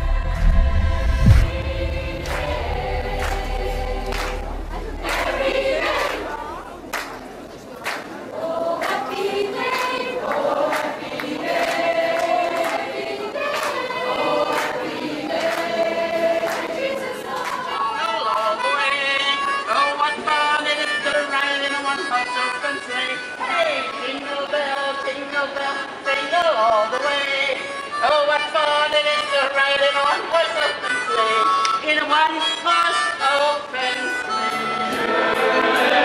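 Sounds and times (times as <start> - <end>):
sharp beat: 0.0 - 6.7
choir singing in harmony: 0.0 - 7.0, 8.2 - 18.6, 34.0 - 36.0.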